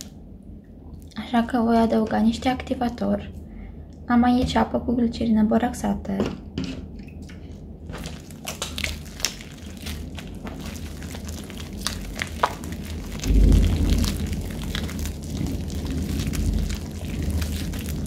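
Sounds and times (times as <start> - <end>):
slime squelching: 7.4 - 18.0
slime crackling pops: 7.9 - 18.0.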